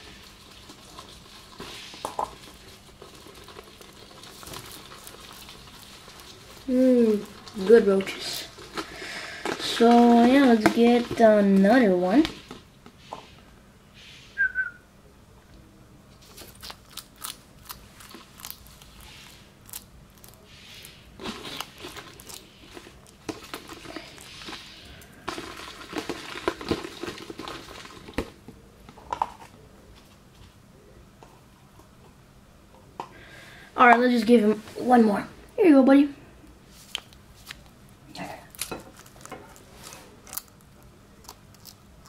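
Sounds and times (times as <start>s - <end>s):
lizard crunching insect shell: 16.2s - 28.2s, 37.0s - 42.0s.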